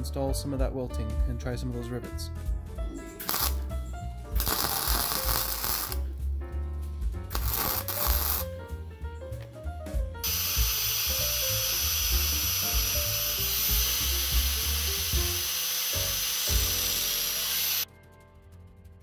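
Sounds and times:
background music: 0.0 - 19.0
angle grinder grinding steel: 4.4 - 6.0, 7.3 - 8.4, 10.2 - 17.8.

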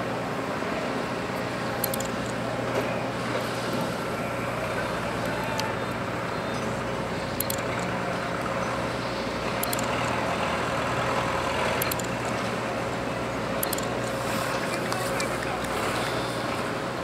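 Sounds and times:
faint sharp clicks: 9.6 - 10.2, 11.8 - 12.5, 13.6 - 14.2.

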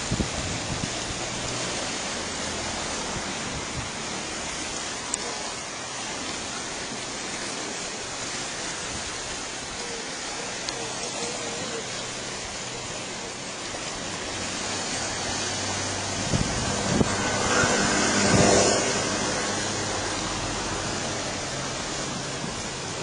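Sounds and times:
wind bumps on microphone: 0.0 - 1.4, 15.8 - 19.4
surf washing against rocks: 0.0 - 23.0.

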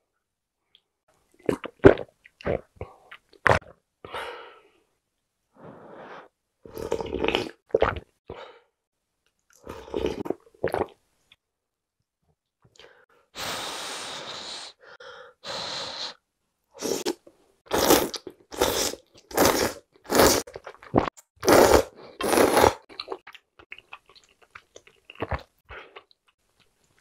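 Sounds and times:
slurping noodles: 6.7 - 8.0, 9.6 - 10.9, 16.8 - 23.2
wet chewing with clicks: 22.9 - 27.0.

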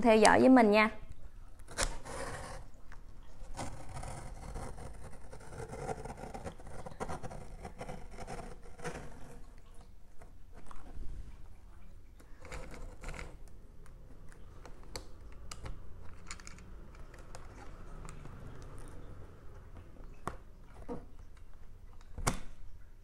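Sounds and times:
blade scraping along seams: 1.7 - 2.8, 3.4 - 9.7.

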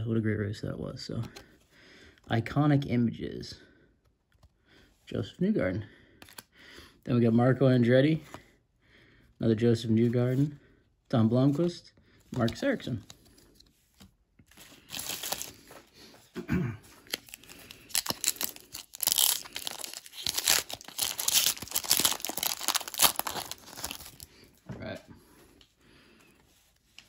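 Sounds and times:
foil pack tearing and crinkling: 17.0 - 24.3.

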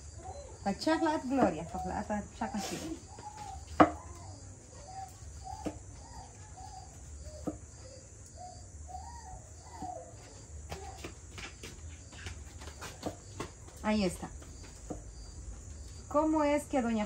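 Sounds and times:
soft bird calls: 0.1 - 11.1.

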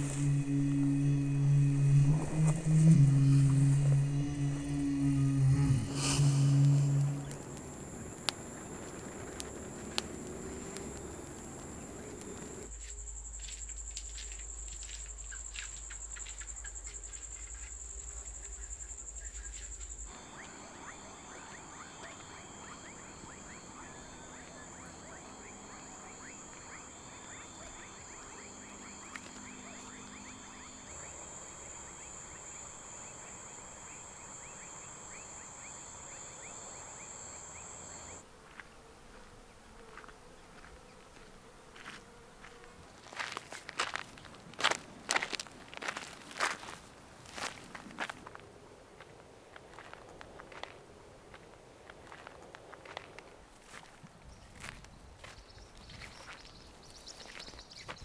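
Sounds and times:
low hum: 0.0 - 12.7, 20.0 - 38.2
insects trilling: 0.0 - 38.8, 49.6 - 58.0.

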